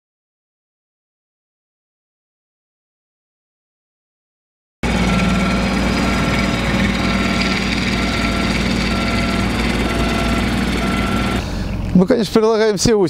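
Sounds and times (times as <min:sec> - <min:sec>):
tractor engine running: 0:04.8 - 0:12.9.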